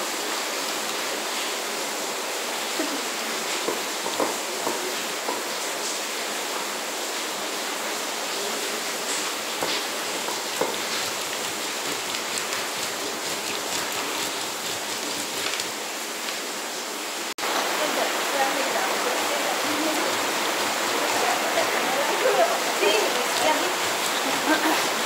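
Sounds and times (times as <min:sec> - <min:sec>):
stone grinding corn: 0:09.5 - 0:15.8, 0:19.6 - 0:22.3, 0:23.0 - 0:25.0.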